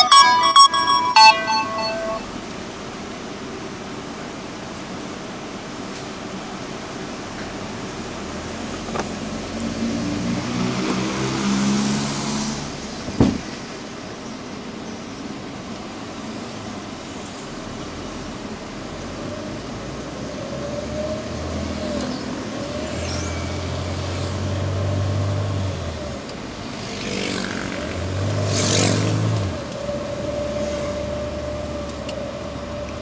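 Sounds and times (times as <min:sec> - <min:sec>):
road noise: 0:01.1 - 0:33.0
car engine inside cabin: 0:23.8 - 0:33.0.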